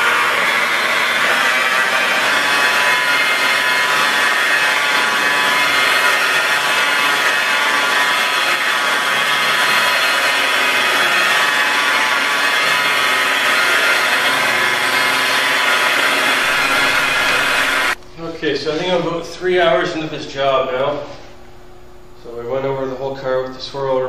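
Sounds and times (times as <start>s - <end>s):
car polisher whining: 0.0s - 18.0s.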